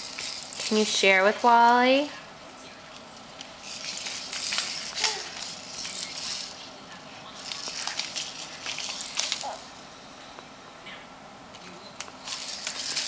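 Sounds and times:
baby rattle shaking: 0.0s - 1.8s, 3.4s - 6.6s, 7.4s - 9.8s, 12.2s - 13.0s.

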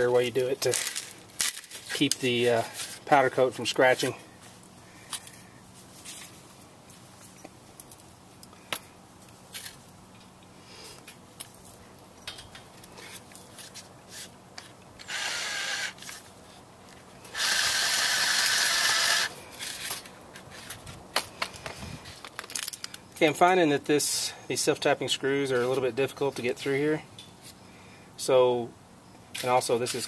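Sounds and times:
cordless drill driving screw into metal: 15.0s - 16.2s, 17.3s - 19.3s.

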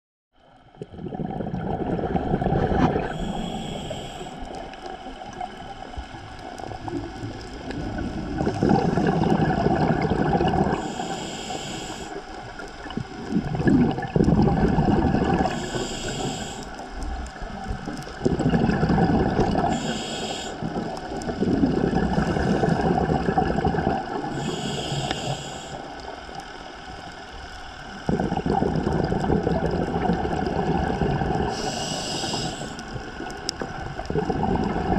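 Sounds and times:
exhaled bubbles rumbling: 0.5s - 25.1s, 25.8s - 34.9s
regulator inhale hiss: 3.0s - 5.2s, 10.6s - 12.8s, 15.4s - 17.5s, 19.4s - 21.5s, 22.1s - 23.1s, 24.1s - 28.4s, 31.3s - 33.5s.

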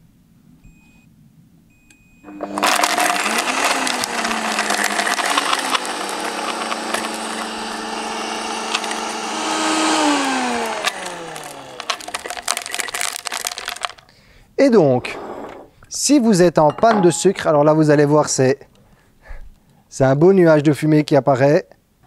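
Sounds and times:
short beeps: 0.6s - 1.1s, 1.7s - 2.3s
blender motor running: 2.3s - 14.0s
sugar cubes cracking and rattling: 2.5s - 9.2s, 10.0s - 14.1s.

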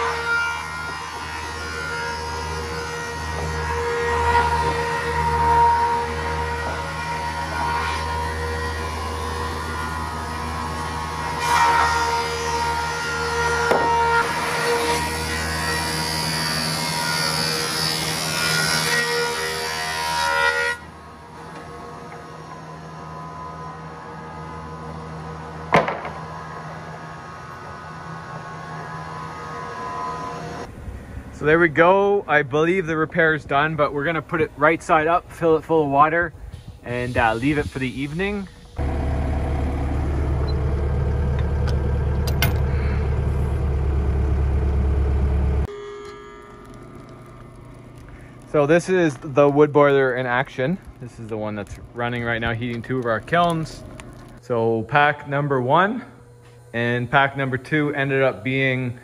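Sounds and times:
engine idling: 38.6s - 45.7s
planer machine running: 38.8s - 45.8s.

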